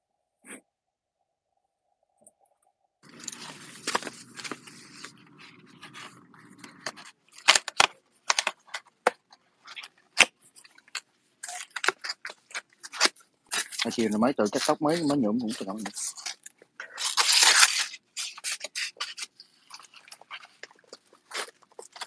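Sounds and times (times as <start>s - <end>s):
cardboard box being opened: 3.0s - 8.6s.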